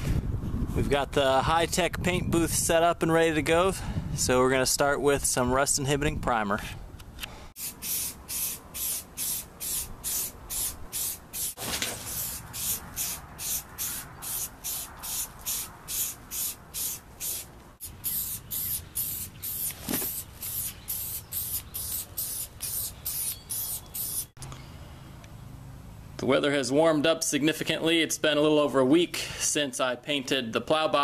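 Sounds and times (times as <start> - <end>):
aerosol spray can hissing: 7.6 - 24.3.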